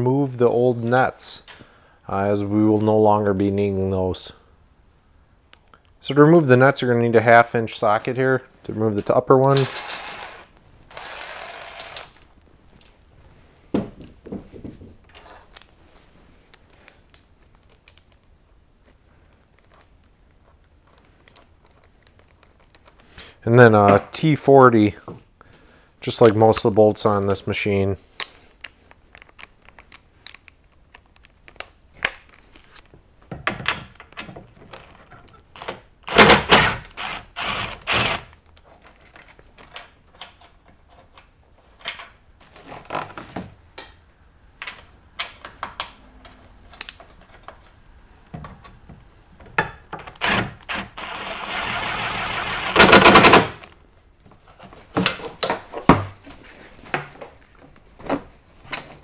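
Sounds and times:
tool handling clicks and knocks: 16.5 - 23.2, 44.6 - 51.1
impact driver rattling: 35.6 - 38.3, 50.0 - 53.6.

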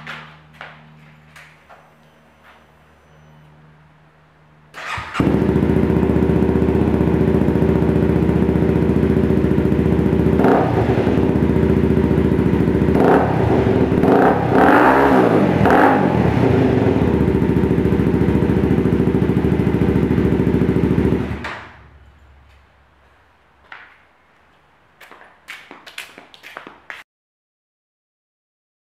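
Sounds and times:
motorcycle engine idling and revving: 4.7 - 23.1.

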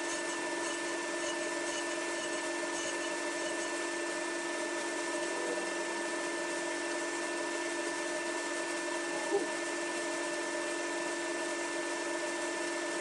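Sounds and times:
table saw humming: 0.0 - 13.0.

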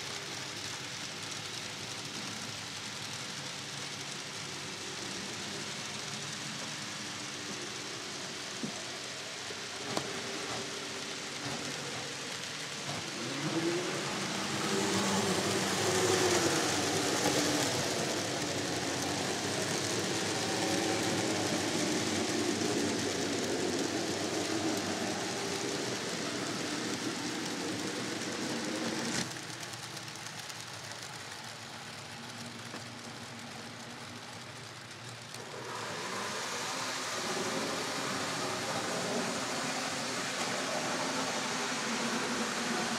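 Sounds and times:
model train wheels rumbling: 0.0 - 42.9
wavering motor whine: 4.8 - 31.5, 35.4 - 42.9.

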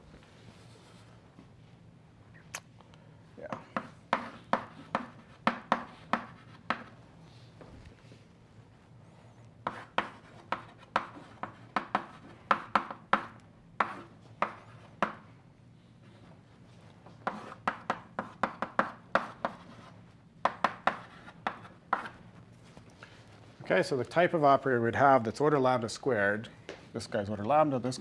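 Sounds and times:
chalk writing on blackboard: 3.5 - 7.0, 9.6 - 15.2, 17.2 - 22.3.

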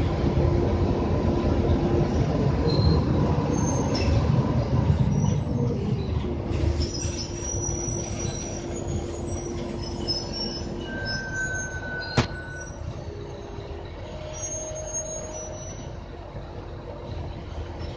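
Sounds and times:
bus engine drone: 0.0 - 17.9
road rumble: 0.0 - 17.9
thin high squeal: 9.9 - 12.8.

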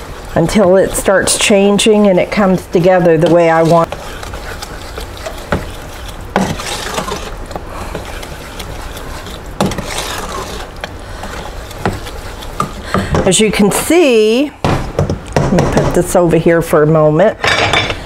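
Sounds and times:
steady low hum: 0.0 - 16.3
spoon scraping metal pot: 0.3 - 14.3.

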